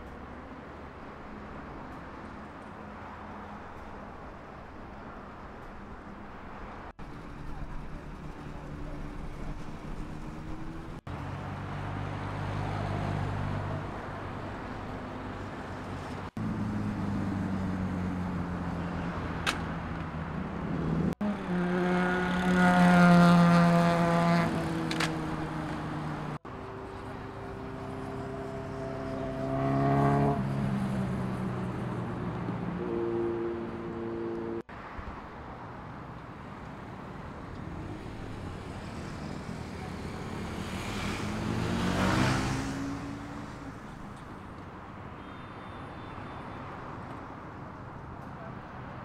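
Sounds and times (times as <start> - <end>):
motorcycle engines revving: 16.2 - 34.7, 37.5 - 44.5
motorcycle passing by: 20.6 - 34.6, 37.6 - 44.2.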